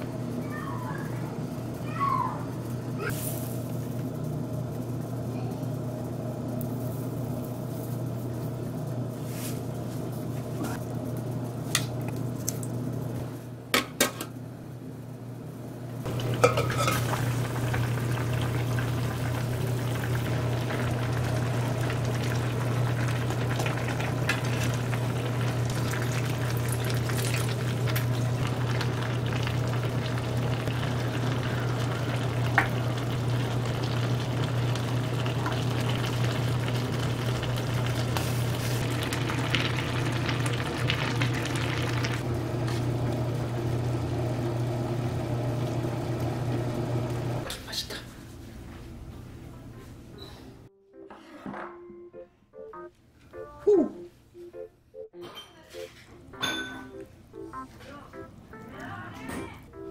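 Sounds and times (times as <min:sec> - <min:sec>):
broth bubbling in a pot: 0:16.0 - 0:47.5
lid and utensils clinking on pot: 0:16.3 - 0:17.2, 0:56.4 - 0:56.9.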